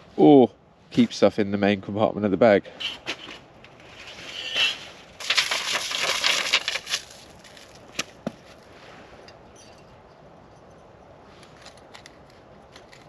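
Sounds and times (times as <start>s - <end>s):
footsteps crunching on frozen leaves: 5.2s - 8.9s.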